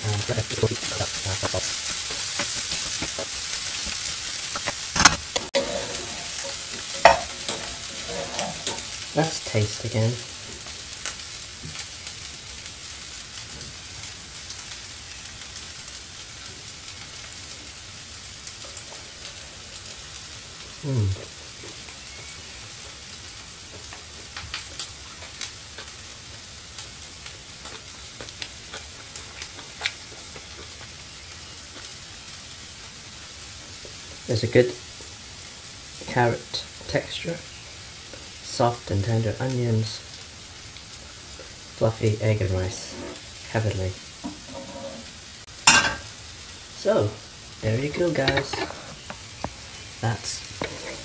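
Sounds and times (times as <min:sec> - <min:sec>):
fried rice sizzling in pans: 0:00.0 - 0:51.0
utensils clicking against pans: 0:00.1 - 0:09.9, 0:48.2 - 0:49.1
low voiced hum: 0:20.8 - 0:21.8.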